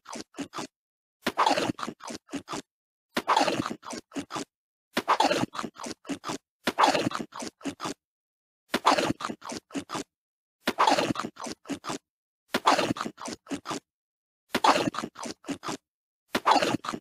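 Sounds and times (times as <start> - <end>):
cartoon crunching bite and chomps: 0.0 - 0.7, 1.3 - 8.0, 8.8 - 10.1, 10.7 - 12.0, 12.6 - 13.9, 14.6 - 15.8, 16.4 - 17.0.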